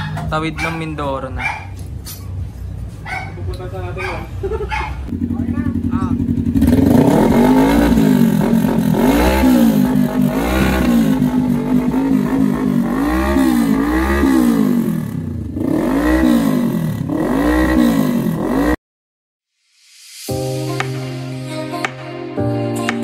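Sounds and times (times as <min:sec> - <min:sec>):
motorcycle engine revving: 0:03.4 - 0:18.8.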